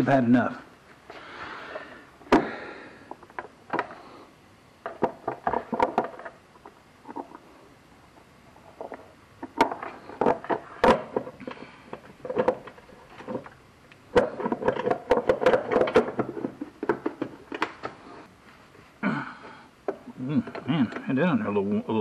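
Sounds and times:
tools and parts clattering: 4.8s - 6.4s, 8.7s - 18.0s.

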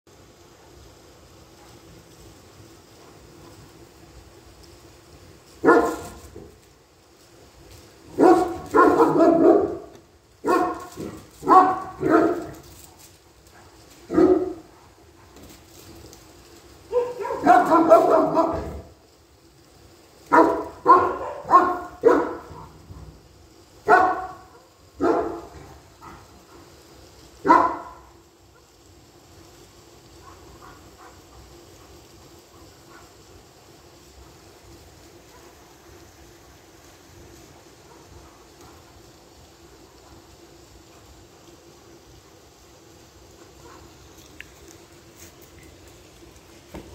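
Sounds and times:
dog barking: 5.6s - 6.5s, 8.1s - 12.6s, 13.6s - 15.4s, 16.9s - 18.9s, 20.3s - 22.8s, 23.8s - 26.7s, 27.4s - 28.7s, 30.2s - 33.2s, 35.2s - 35.6s, 37.8s - 39.0s, 43.4s - 44.0s.

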